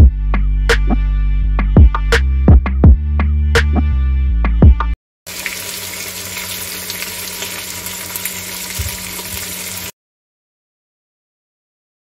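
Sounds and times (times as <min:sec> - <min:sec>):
music with a beat: 0:00.0 - 0:05.0
food sizzling in hot oil: 0:05.3 - 0:10.0.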